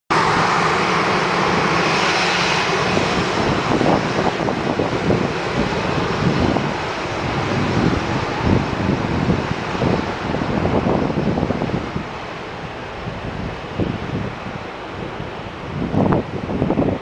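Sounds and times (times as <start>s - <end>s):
jet engines running: 0.1s - 17.0s.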